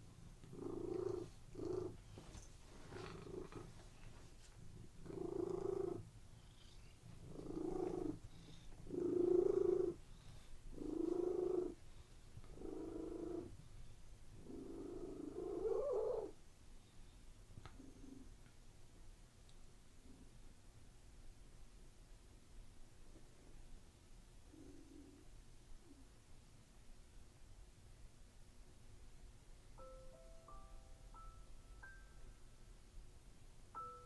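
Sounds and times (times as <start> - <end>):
cat purring: 0.0 - 16.4, 17.6 - 18.5, 24.4 - 26.2.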